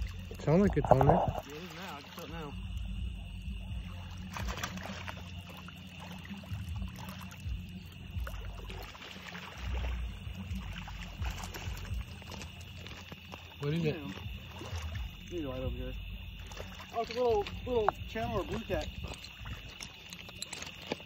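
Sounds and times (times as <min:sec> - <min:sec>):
wind rumbling on microphone: 0:00.0 - 0:01.6, 0:17.2 - 0:20.5
water lapping on rocky shore: 0:00.0 - 0:21.0.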